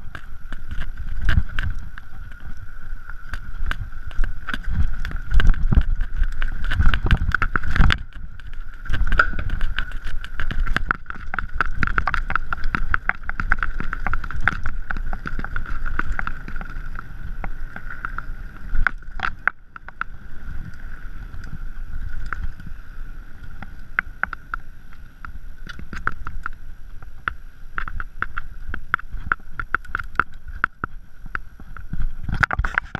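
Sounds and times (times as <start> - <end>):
bike rattling over bumps: 0.0 - 22.8
wind on microphone: 0.0 - 32.9.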